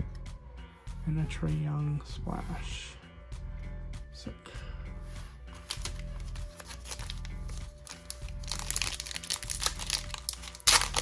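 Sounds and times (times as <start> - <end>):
background music: 0.0 - 11.0
foil wrapper crinkling: 5.6 - 11.0.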